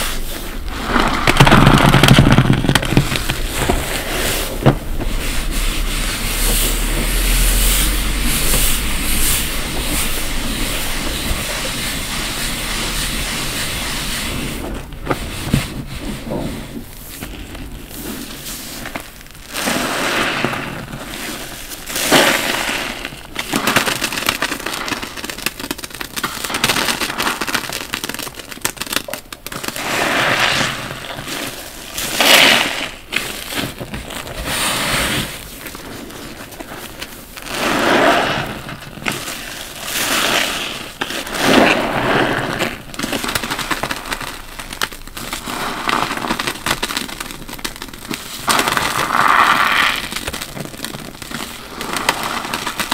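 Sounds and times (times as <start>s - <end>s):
sponge squelching with foam: 0.0s - 21.7s.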